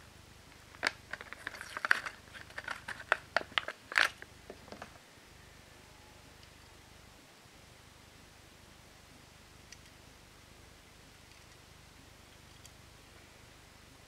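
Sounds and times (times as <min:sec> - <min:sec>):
plastic packaging crinkling: 0:00.6 - 0:05.0.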